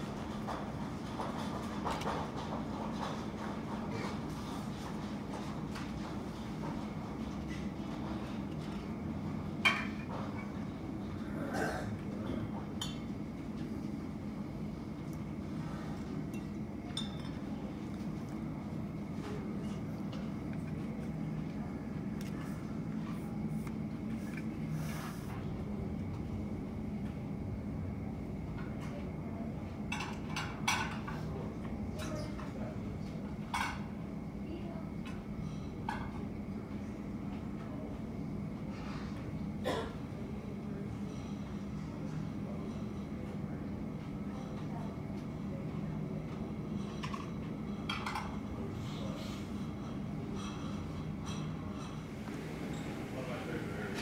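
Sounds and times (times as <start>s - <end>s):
low hum of airport ramp: 0.0s - 54.0s.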